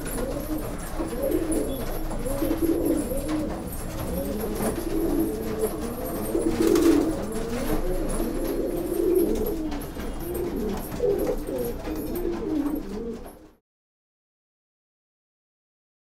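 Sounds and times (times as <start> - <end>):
pigeons cooing: 0.0 - 13.6.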